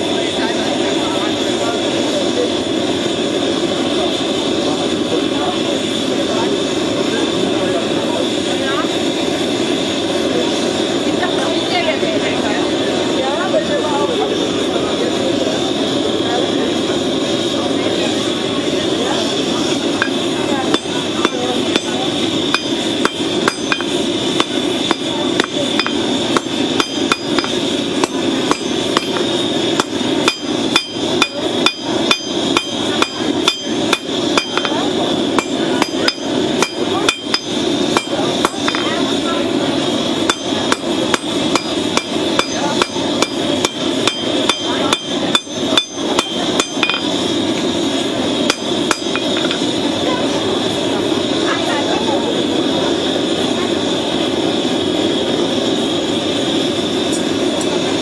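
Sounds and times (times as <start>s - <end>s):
steady rushing noise: 0.0s - 58.0s
hammer striking metal on anvil: 20.0s - 34.8s, 35.4s - 39.0s, 40.2s - 47.1s, 48.5s - 49.6s.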